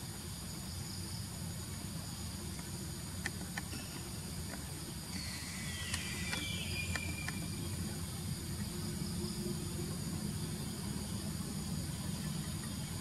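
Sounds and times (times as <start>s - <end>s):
insects buzzing: 0.0s - 13.0s
scattered clicks: 2.6s - 4.7s.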